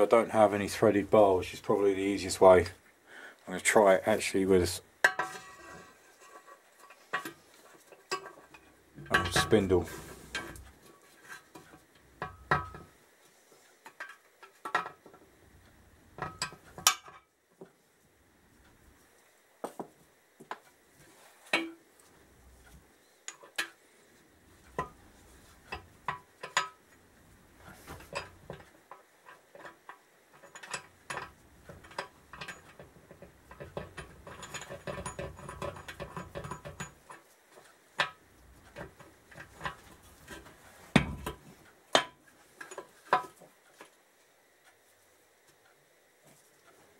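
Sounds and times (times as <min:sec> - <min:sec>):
metal clinks and scrapes: 0:05.1 - 0:12.8, 0:27.6 - 0:41.6.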